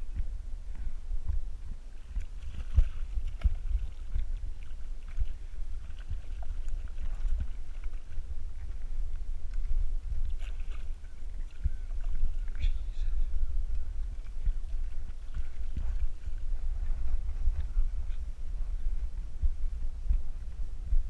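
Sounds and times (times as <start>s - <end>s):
wind: 0.0s - 21.0s.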